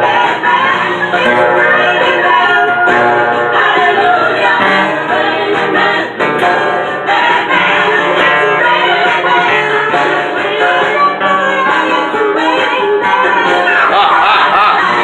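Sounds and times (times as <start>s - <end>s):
person singing: 7.6s - 15.0s.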